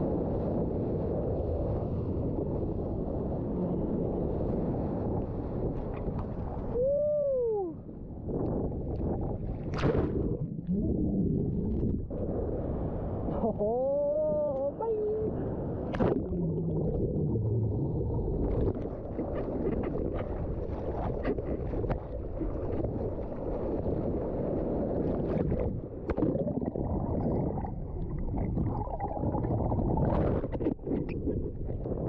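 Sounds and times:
wind on microphone: 0.0 - 32.0.

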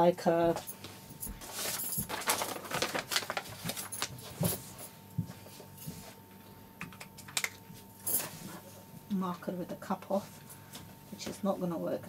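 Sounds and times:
paper and fabric rustling: 1.3 - 6.2.

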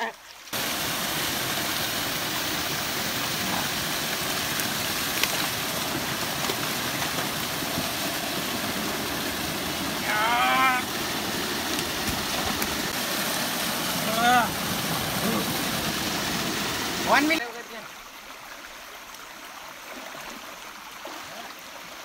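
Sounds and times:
small waterfall pouring: 0.0 - 22.0
person calling: 9.9 - 11.1.

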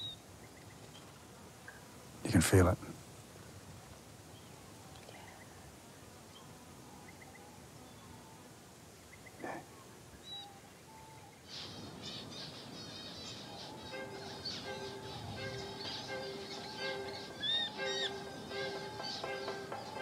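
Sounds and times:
bird chirps: 0.0 - 1.0, 10.2 - 20.0
high twittering birdsong: 0.0 - 1.1, 9.0 - 20.0.

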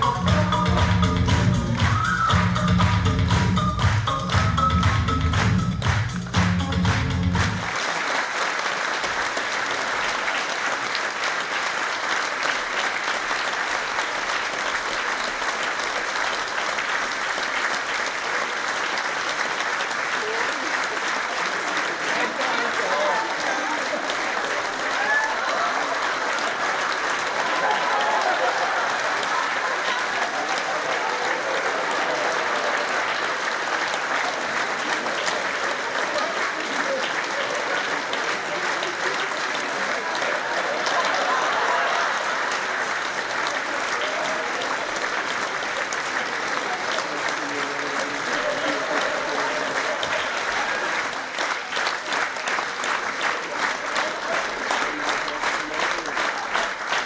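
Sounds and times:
music with a steady beat: 0.0 - 7.6
audience applauding: 0.0 - 57.0.

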